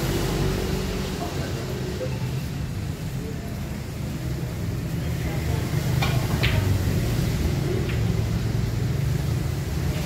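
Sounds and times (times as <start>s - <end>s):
pool balls clicking: 5.9s - 6.9s, 7.6s - 8.6s.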